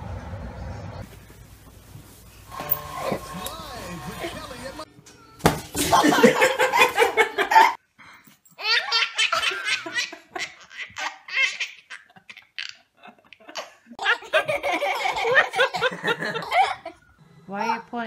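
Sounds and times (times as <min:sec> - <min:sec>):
man laughing: 0:03.0 - 0:04.8, 0:05.8 - 0:07.8, 0:14.2 - 0:16.9
baby laughing: 0:08.6 - 0:17.0.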